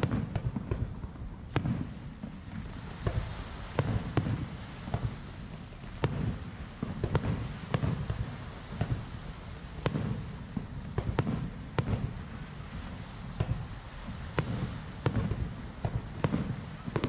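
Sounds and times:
firework bursts with rumbling echo: 0:00.0 - 0:17.0.

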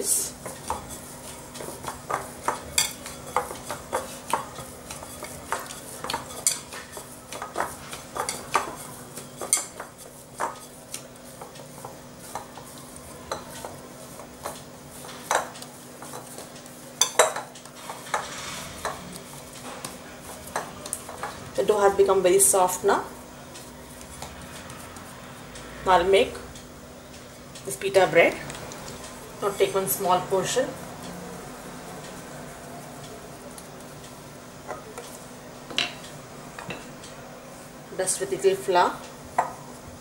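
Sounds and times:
hands kneading dough in bowl: 0:00.1 - 0:22.6.

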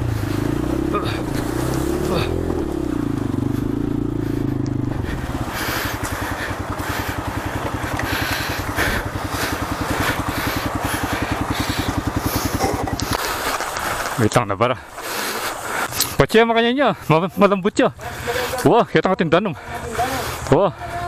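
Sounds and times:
motorcycle engine revving and puttering: 0:00.0 - 0:14.4.

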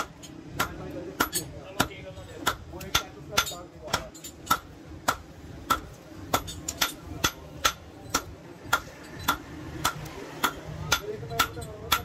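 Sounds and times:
hammer striking metal on anvil: 0:00.0 - 0:12.0.

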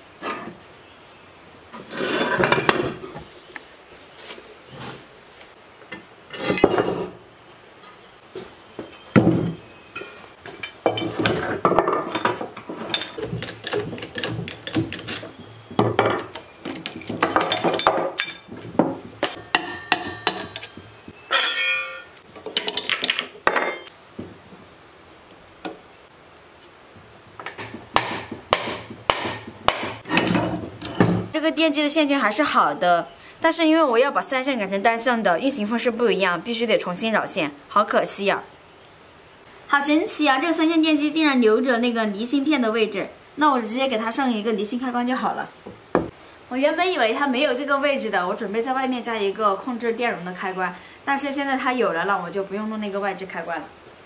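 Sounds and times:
metal knocks clanks and scraping: 0:01.8 - 0:03.2, 0:09.2 - 0:23.9, 0:27.4 - 0:31.3.

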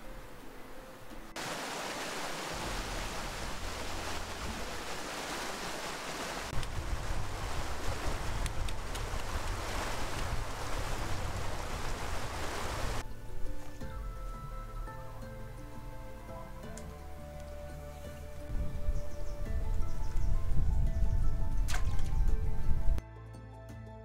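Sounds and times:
wind blowing: 0:00.0 - 0:23.0
wind buffeting microphone: 0:02.5 - 0:13.5, 0:18.4 - 0:23.0.

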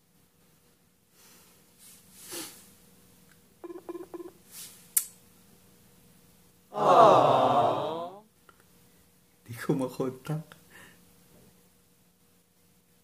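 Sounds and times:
phone call tone beeps: 0:03.6 - 0:04.4.

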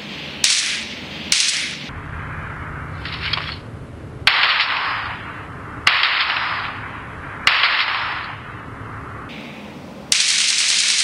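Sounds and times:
video game gunshots: 0:04.2 - 0:05.2, 0:05.8 - 0:08.4.

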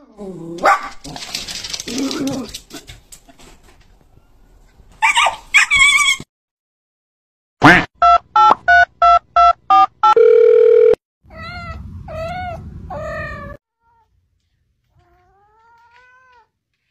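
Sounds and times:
dog barking: 0:00.6 - 0:01.0
steady phone tone: 0:08.0 - 0:11.0
telephone keypad beeps: 0:08.0 - 0:11.0.

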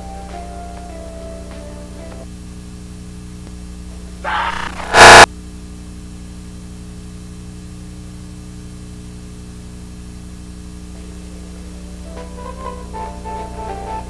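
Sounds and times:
faint musical tones: 0:00.0 - 0:02.3, 0:11.0 - 0:14.0
low electrical hum: 0:00.0 - 0:14.0
tape static hiss: 0:00.0 - 0:14.0.

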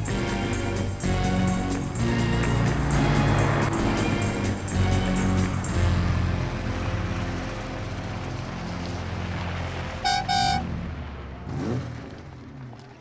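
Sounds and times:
car engine running: 0:00.0 - 0:13.0
car horn toots: 0:10.0 - 0:10.8.

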